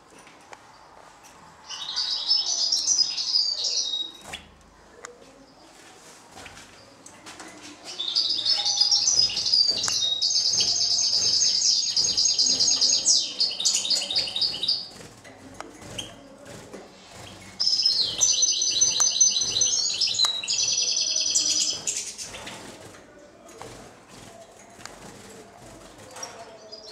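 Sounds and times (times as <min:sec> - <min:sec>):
songbird twittering: 0:17.6 - 0:22.2.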